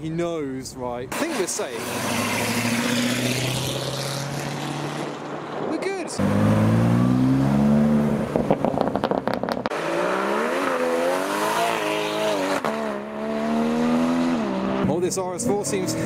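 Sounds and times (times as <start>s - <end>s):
car engine revving: 1.1s - 5.6s, 6.2s - 16.0s
car engine accelerating away: 6.2s - 14.9s
exhaust crackles and pops: 8.3s - 9.8s.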